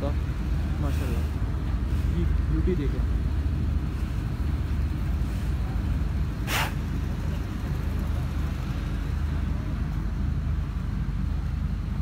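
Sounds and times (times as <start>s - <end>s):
engine droning: 0.0s - 12.0s
short sharp hiss: 6.4s - 6.9s.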